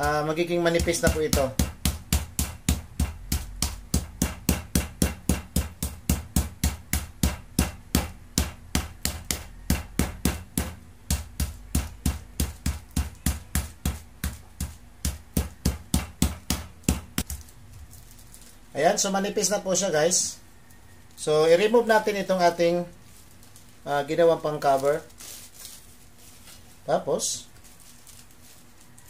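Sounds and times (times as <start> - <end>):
rolling pin pounding meat: 0.0 - 17.5.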